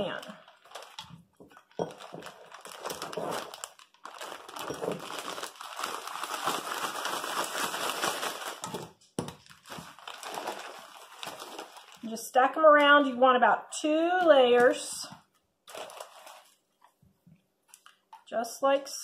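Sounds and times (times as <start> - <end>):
plastic bag crinkling: 0.0 - 12.2, 15.6 - 17.0.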